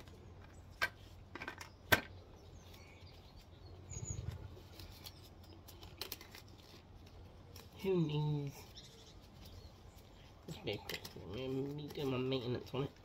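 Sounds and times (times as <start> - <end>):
faint bird chirp: 1.6 - 5.9, 8.2 - 10.8
crumpled plastic rustling: 4.3 - 13.0.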